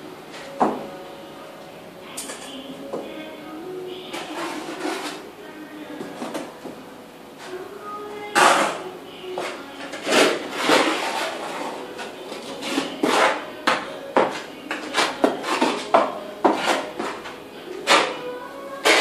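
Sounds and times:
trowel scraping adhesive on concrete: 0:09.9 - 0:11.8.

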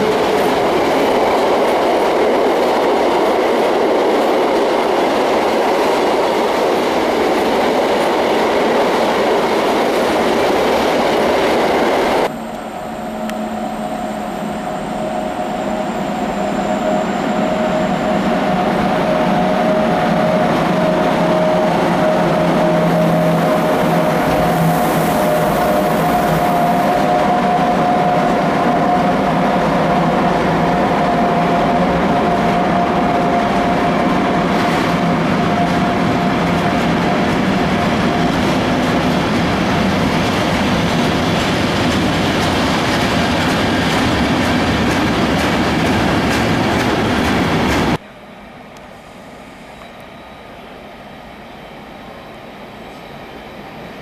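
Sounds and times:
locomotive whine: 0:00.0 - 0:54.0
train wheel and rail noise: 0:00.0 - 0:54.0.

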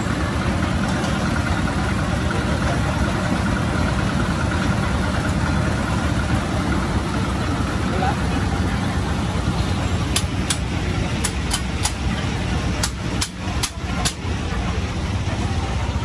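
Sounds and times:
engine idling: 0:00.0 - 0:16.0.

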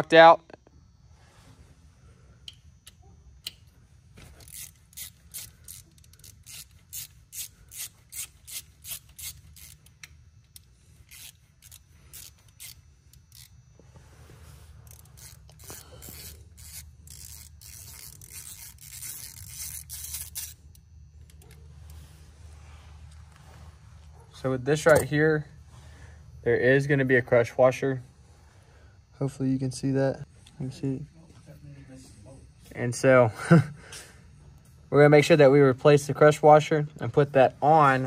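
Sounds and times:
ratchet wrench clicking: 0:02.4 - 0:13.6, 0:14.8 - 0:21.6.

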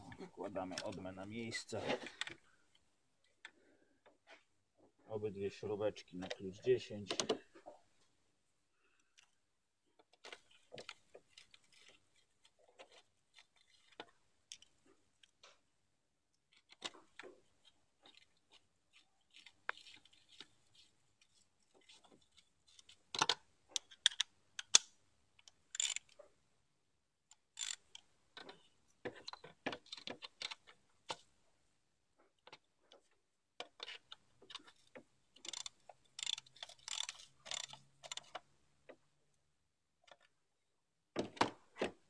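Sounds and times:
ratchet wrench clicking: 0:25.7 - 0:26.0, 0:35.5 - 0:38.3.

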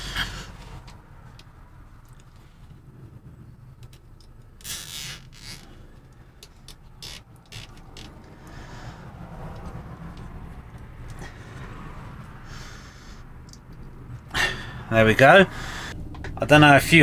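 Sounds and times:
cable tie scraping and clicking: 0:00.0 - 0:08.6, 0:09.4 - 0:11.3.

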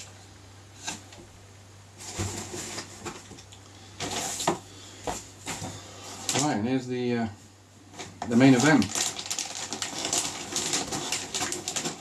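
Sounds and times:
faint steady hum: 0:00.0 - 0:12.0
packaging foam and plastic rustling: 0:02.0 - 0:03.4, 0:04.0 - 0:06.6, 0:08.0 - 0:12.0.

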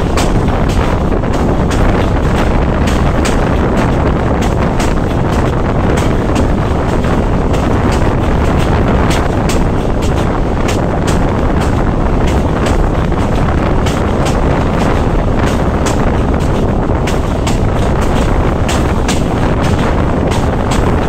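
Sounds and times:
railcar engine and wheels rumbling: 0:00.0 - 0:21.0
wheels clicking on rail joints: 0:00.0 - 0:21.0
wind rushing past: 0:00.0 - 0:21.0.

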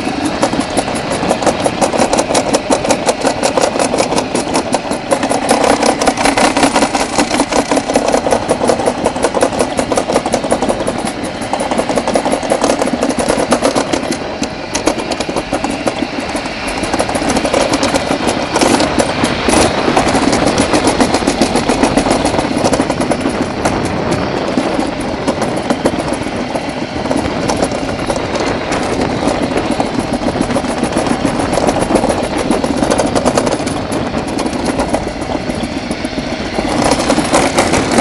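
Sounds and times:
sled rattling down metal track: 0:00.0 - 0:38.0.

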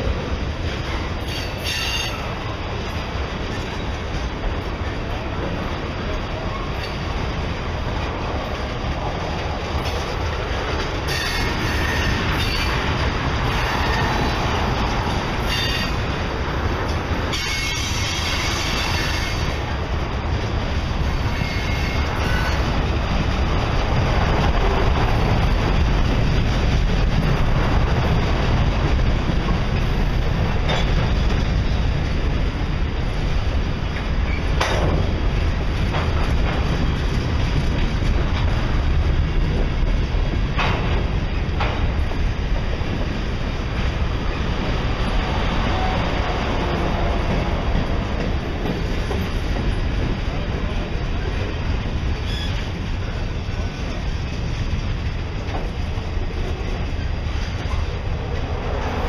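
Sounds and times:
train wheels rumbling on rail: 0:00.0 - 0:59.0
wheel squeals: 0:52.2 - 0:52.7.

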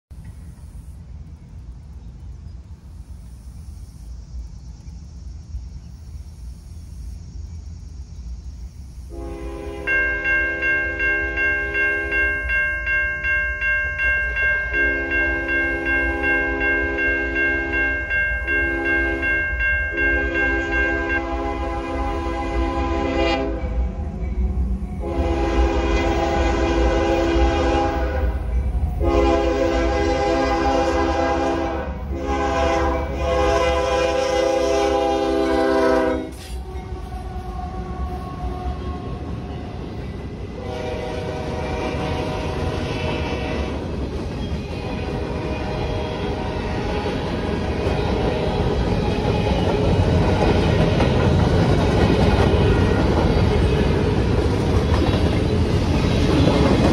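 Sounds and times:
diesel locomotives passing: 0:00.1 - 0:56.9
train air horn blasts: 0:09.1 - 0:12.5, 0:14.7 - 0:23.9, 0:25.0 - 0:39.5, 0:40.5 - 0:43.9
freight cars rumbling: 0:09.8 - 0:56.9
wheels clacking over rail joints: 0:41.8 - 0:56.9.

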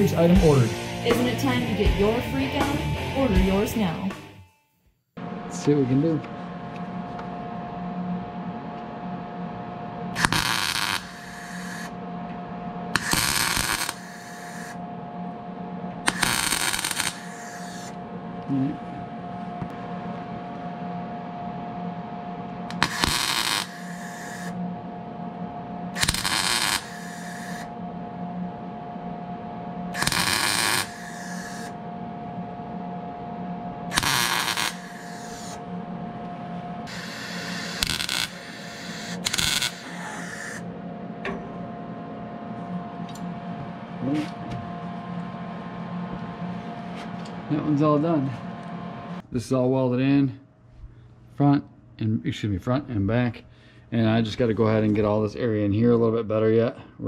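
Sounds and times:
steady hum: 0:00.0 - 0:04.3, 0:05.2 - 0:57.0
welder crackling buzz: 0:10.0 - 0:18.7, 0:22.6 - 0:24.9, 0:25.8 - 0:27.8, 0:29.8 - 0:31.9, 0:33.8 - 0:40.7.

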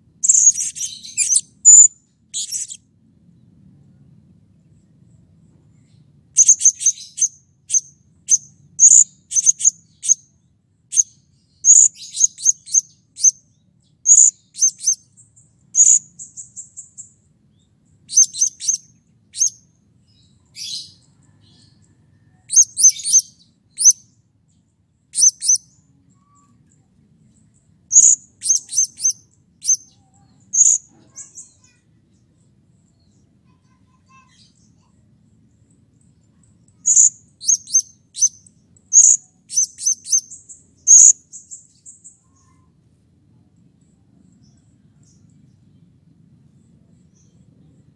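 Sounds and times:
parrot chirping: 0:00.2 - 0:02.8, 0:06.4 - 0:10.2, 0:14.1 - 0:15.0, 0:25.1 - 0:25.6, 0:27.9 - 0:29.9, 0:36.8 - 0:41.2.

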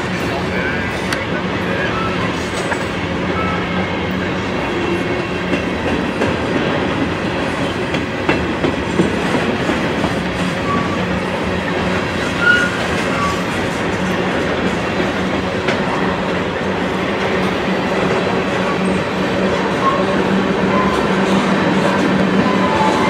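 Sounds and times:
train wheels clattering on rails: 0:00.0 - 0:23.0
high wheel squeals: 0:10.6 - 0:11.1, 0:12.3 - 0:13.5.

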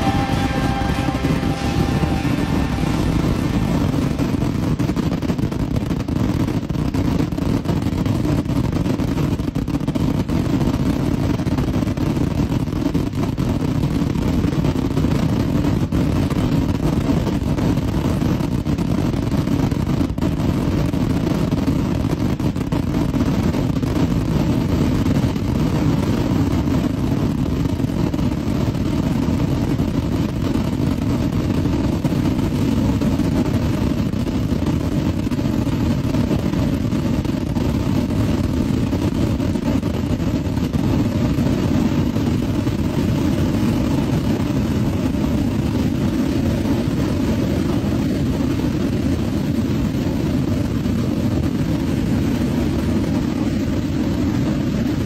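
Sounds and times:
rockets launching rushing noise: 0:00.0 - 0:10.6.

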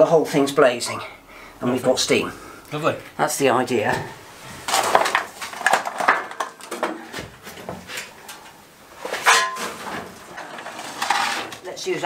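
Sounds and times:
metal scraping and clattering: 0:09.0 - 0:11.6.

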